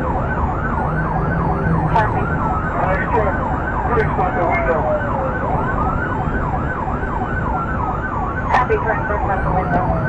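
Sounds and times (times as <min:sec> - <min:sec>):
police siren wailing: 0:00.0 - 0:10.0
police siren yelping: 0:00.0 - 0:10.0
road noise: 0:00.0 - 0:10.0.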